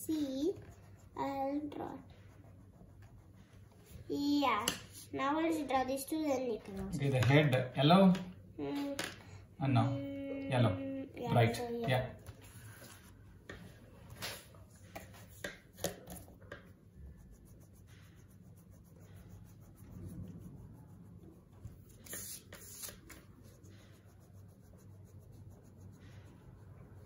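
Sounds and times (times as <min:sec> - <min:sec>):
pen scratching on paper: 0:00.1 - 0:04.0, 0:14.2 - 0:27.0.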